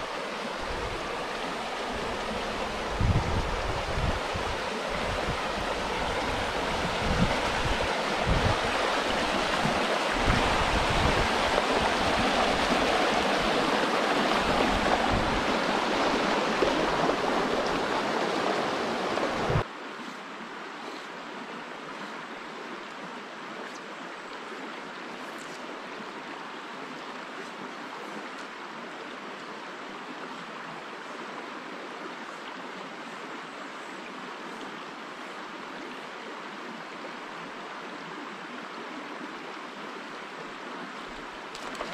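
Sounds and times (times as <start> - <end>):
water rushing over rocks: 0.0 - 23.6, 39.2 - 41.9.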